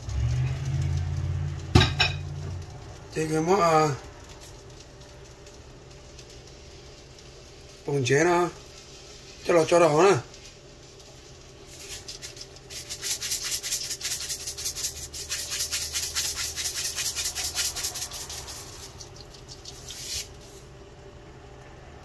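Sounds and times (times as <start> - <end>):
salt shaker rattling: 8.6 - 20.8.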